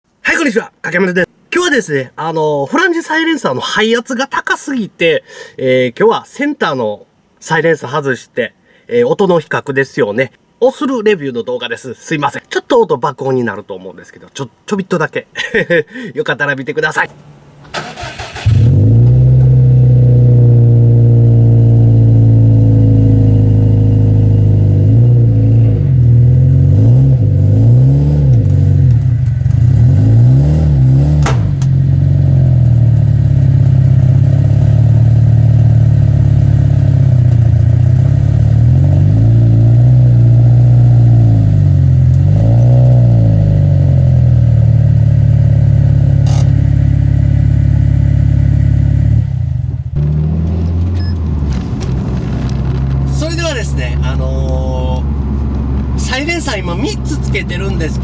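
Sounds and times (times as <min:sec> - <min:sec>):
car engine idling and revving: 0:17.6 - 0:58.0.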